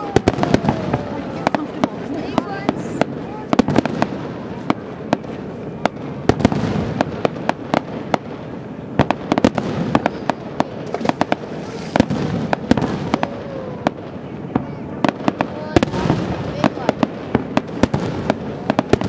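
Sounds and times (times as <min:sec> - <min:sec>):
firework shells bursting: 0:09.0 - 0:14.0.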